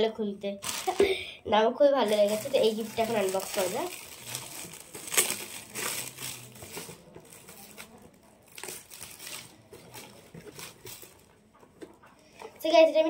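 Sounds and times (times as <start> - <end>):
wrapping paper crinkling: 0.6 - 1.2, 2.0 - 11.4.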